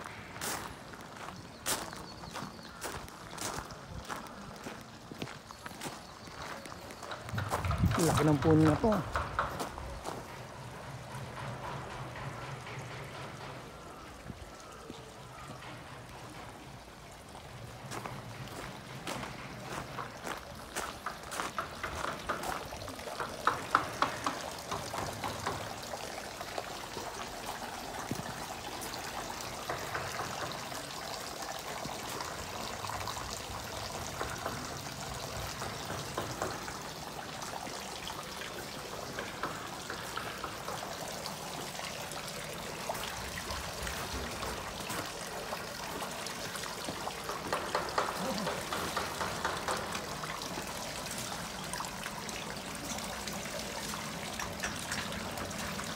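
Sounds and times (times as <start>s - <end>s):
footsteps crunching on gravel: 0.0s - 8.6s, 17.8s - 22.6s
water trickling and splashing: 0.0s - 55.9s.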